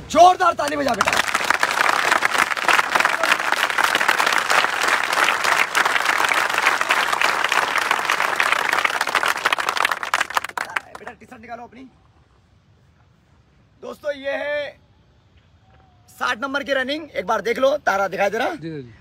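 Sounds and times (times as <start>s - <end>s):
crowd applauding: 0.7s - 11.1s.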